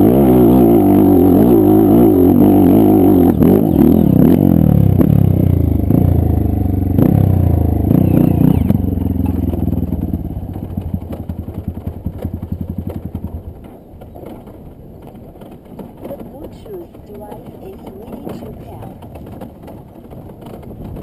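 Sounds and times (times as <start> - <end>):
dirt bike engine revving: 0.0 - 13.5.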